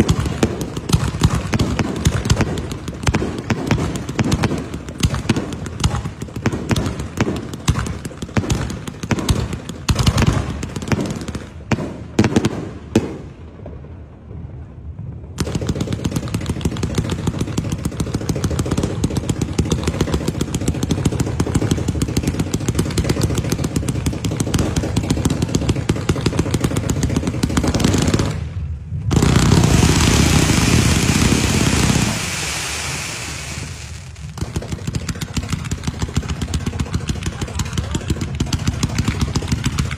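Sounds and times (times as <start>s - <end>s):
fireworks popping and banging: 0.0s - 39.9s
loud rushing noise: 27.8s - 34.4s.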